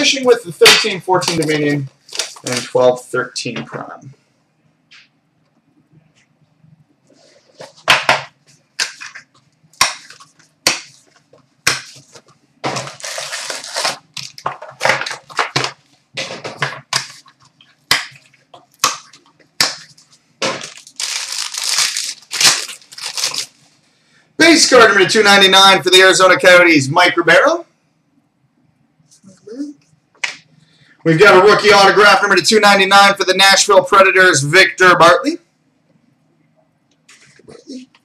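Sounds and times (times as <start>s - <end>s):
cardboard and plastic crinkling: 1.3s - 2.8s, 10.0s - 15.8s, 19.8s - 23.6s
wrapping tearing: 1.9s - 2.8s, 11.9s - 14.4s, 20.6s - 23.6s.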